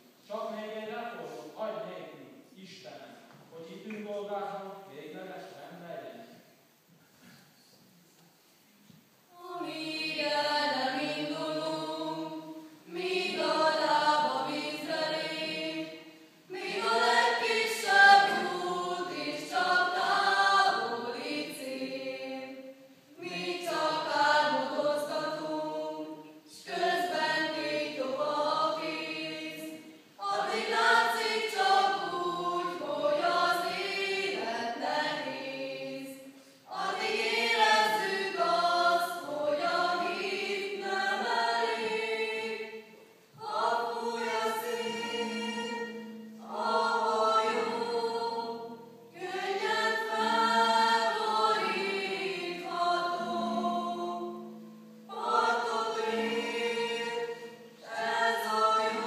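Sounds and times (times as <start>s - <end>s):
mixed choir singing: 9.3s - 59.0s.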